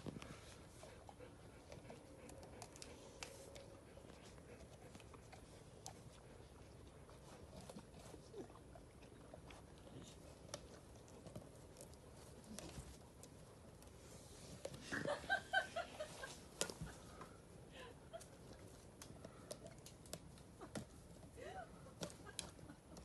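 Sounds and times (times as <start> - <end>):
dog gnawing on wood: 0.2 - 14.8.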